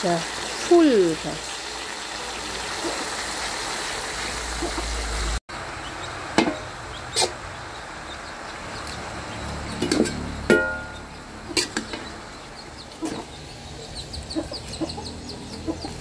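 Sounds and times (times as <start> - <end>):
metal spatula stirring leaves: 9.7 - 12.1.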